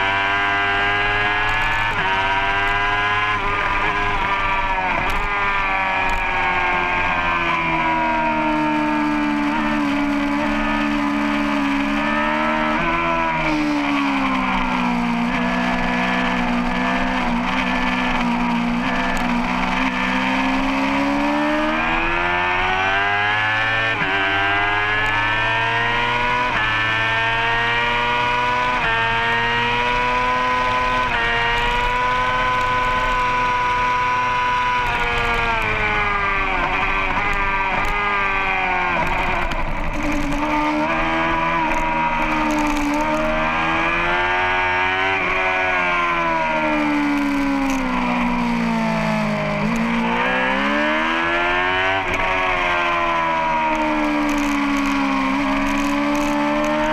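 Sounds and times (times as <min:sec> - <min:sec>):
racing motorcycle engine revving: 0:00.0 - 0:56.9.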